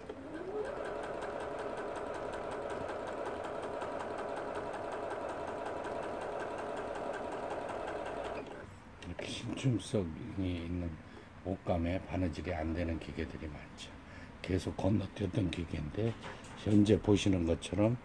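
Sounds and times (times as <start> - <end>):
sewing machine stitching: 0.0 - 8.6.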